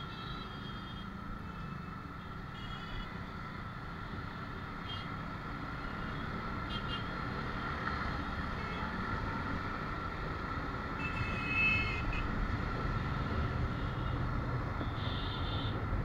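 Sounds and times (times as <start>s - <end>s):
motorcycle horn: 14.8s - 15.8s.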